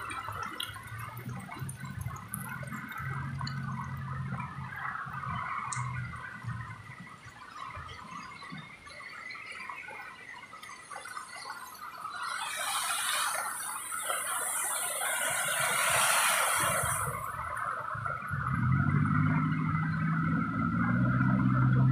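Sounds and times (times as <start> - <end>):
car tyres hissing through water: 12.0 - 18.0.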